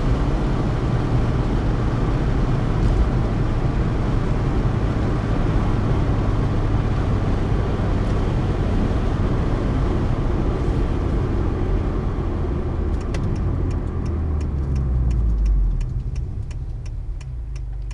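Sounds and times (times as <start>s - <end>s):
car road and engine noise: 0.0s - 17.9s
regular ticking: 12.9s - 17.9s.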